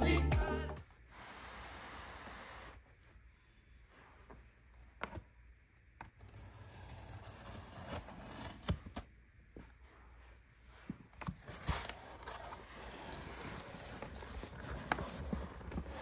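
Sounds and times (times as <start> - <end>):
cardboard rubbing and scraping: 6.2 - 8.8, 11.2 - 16.0.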